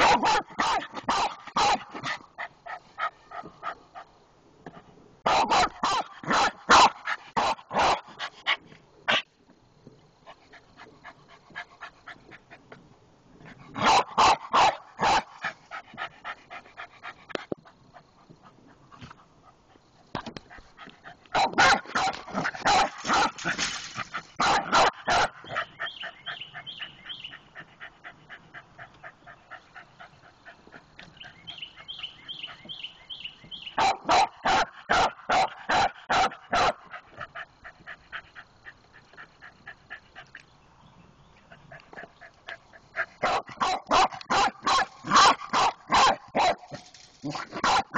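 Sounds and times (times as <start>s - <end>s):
dog barking: 0.0s - 2.0s, 5.2s - 8.2s, 13.8s - 15.4s, 21.3s - 23.6s, 24.4s - 26.7s, 33.8s - 37.0s, 43.2s - 47.9s.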